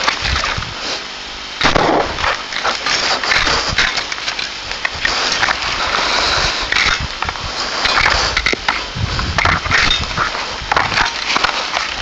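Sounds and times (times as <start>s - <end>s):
constant rustling: 0.0s - 12.0s
shotgun shots: 1.6s - 2.5s
sharp bangs and knocks: 1.6s - 4.0s.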